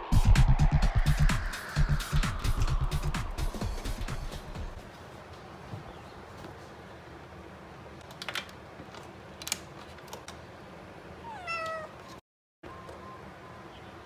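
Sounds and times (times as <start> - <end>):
cat meowing: 11.2 - 12.0.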